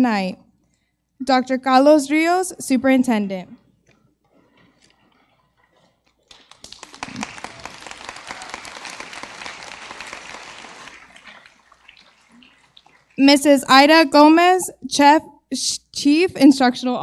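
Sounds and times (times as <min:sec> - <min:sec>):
audience applause: 0:06.2 - 0:13.2.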